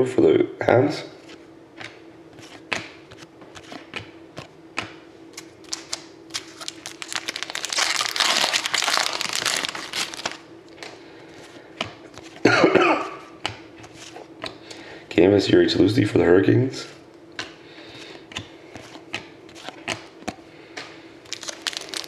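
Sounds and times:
wrapper crinkling and tearing: 0:05.6 - 0:10.4, 0:21.3 - 0:22.0.

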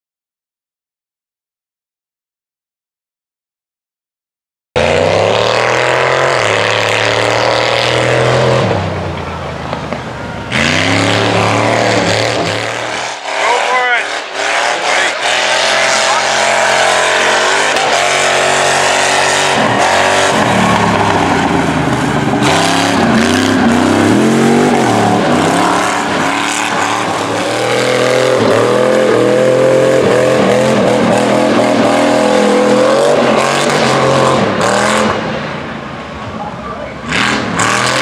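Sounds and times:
truck engine revving: 0:04.8 - 0:38.0.

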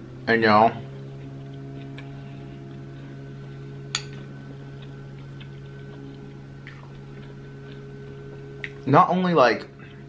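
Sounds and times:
steady low hum: 0:00.0 - 0:10.0
chewing with wet mouth clicks: 0:01.1 - 0:02.9, 0:04.1 - 0:08.9.

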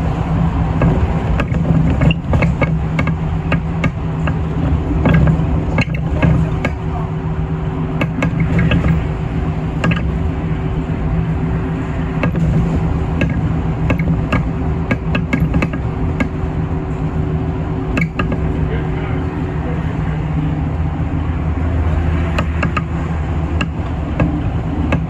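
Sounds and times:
bus engine drone: 0:00.0 - 0:25.0
road and tyre noise: 0:00.0 - 0:25.0
small rattles and clicks: 0:08.0 - 0:09.1.

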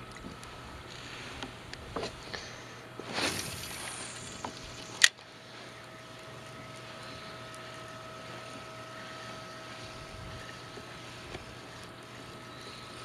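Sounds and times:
faint steady whine: 0:00.0 - 0:13.0
reel clicks: 0:03.0 - 0:13.0
short rushing noise: 0:03.1 - 0:04.4.

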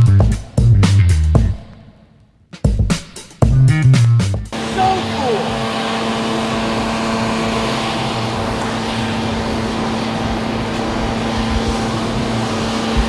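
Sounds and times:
engine droning: 0:04.5 - 0:13.0.

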